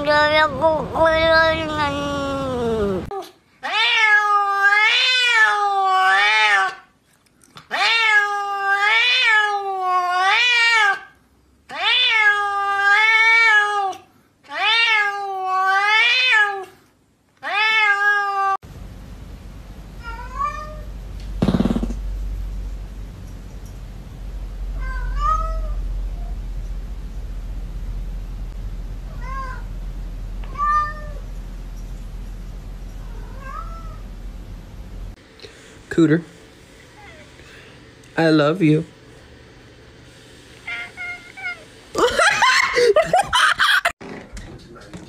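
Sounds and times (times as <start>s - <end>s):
cat meowing loudly: 3.6s - 6.9s, 7.7s - 16.7s, 17.4s - 18.6s.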